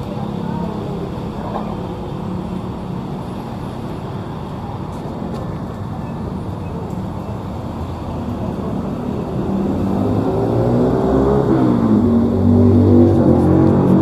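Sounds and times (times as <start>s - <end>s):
vehicle engine accelerating: 7.5s - 14.0s.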